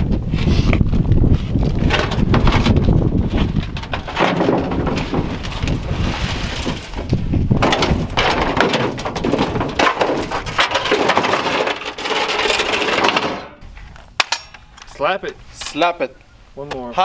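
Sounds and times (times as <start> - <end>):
wind buffeting microphone: 0.0 - 10.9
footsteps crunching on debris: 1.2 - 14.2.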